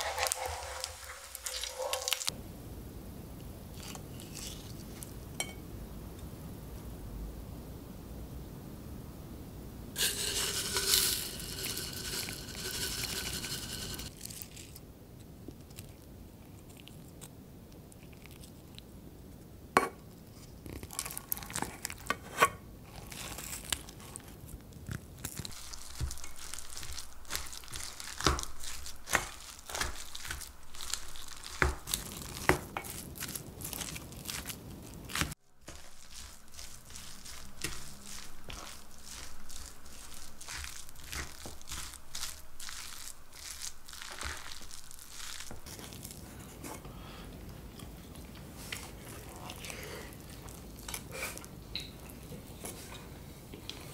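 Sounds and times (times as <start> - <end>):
spoon scraping metal bowl: 0.0 - 2.3, 10.0 - 14.1
wet rice squishing: 0.0 - 2.3, 10.0 - 14.8, 22.9 - 46.7, 47.8 - 52.8.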